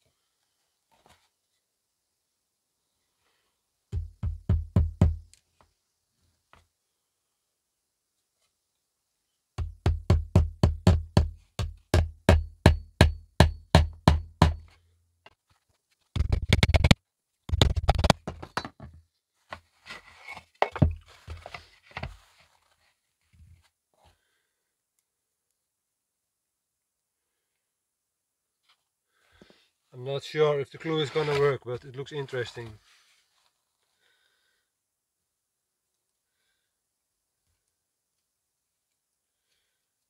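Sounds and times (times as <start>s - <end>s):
rustling and scraping of board: 0.9s - 1.4s, 14.6s - 24.2s, 30.8s - 31.7s
rapid hammer taps: 9.6s - 14.6s
hammer driving nails into wood: 9.6s - 14.8s, 16.2s - 18.7s.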